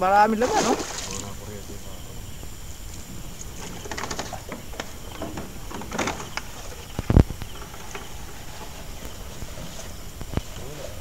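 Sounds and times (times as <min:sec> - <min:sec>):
clicking and rattling in boat: 0:02.9 - 0:11.0.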